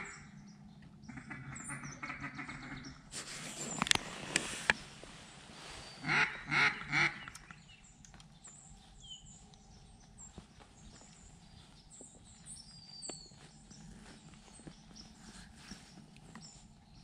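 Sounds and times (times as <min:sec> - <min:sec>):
small birds twittering: 0:00.0 - 0:17.0
duck quacks: 0:01.1 - 0:02.9, 0:06.0 - 0:07.3.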